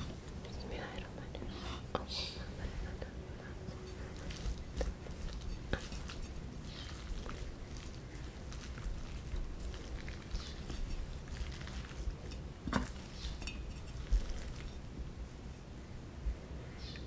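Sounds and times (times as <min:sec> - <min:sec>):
spoon scraping in metal bowl: 0:03.7 - 0:14.8.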